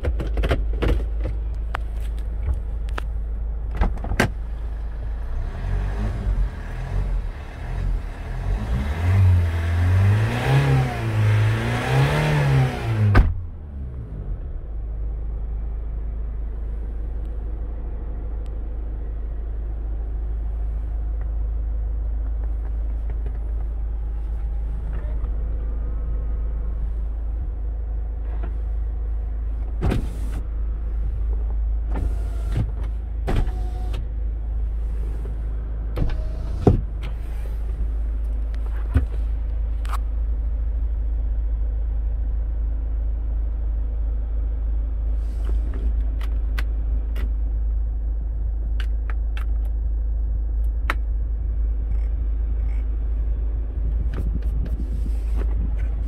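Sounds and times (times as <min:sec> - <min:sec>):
diesel engine idling: 0:14.5 - 0:29.8.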